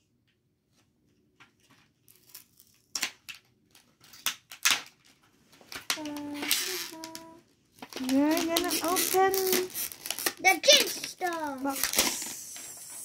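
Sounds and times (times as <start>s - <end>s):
cardboard box rustling and tearing: 7.9s - 12.4s.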